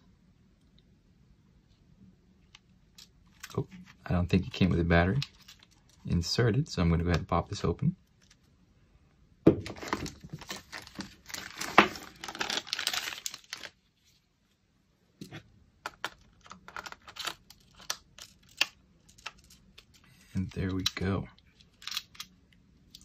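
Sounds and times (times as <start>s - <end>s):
plastic bag crinkling and rustling: 9.6s - 13.9s.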